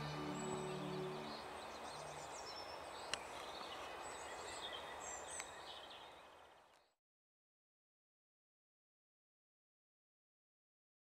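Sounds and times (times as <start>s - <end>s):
outdoor background hiss: 0.0s - 6.9s
small birds chirping: 0.0s - 7.0s.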